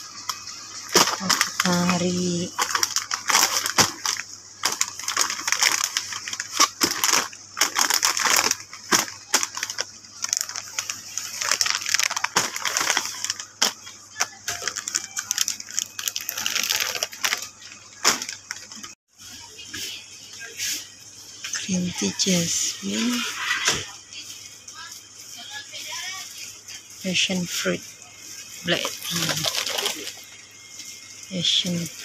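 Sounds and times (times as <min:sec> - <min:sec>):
plastic pouches crinkling: 0:00.1 - 0:19.0, 0:27.2 - 0:32.0.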